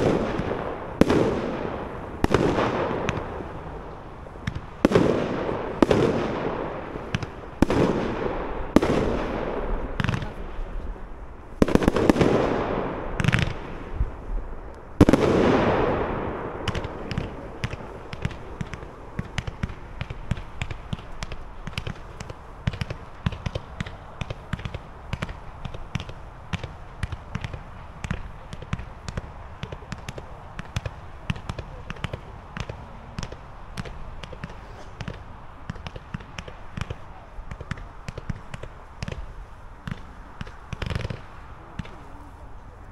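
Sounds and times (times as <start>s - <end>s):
crackling firework pops: 0.0s - 42.9s
firework shells bursting: 11.6s - 42.0s.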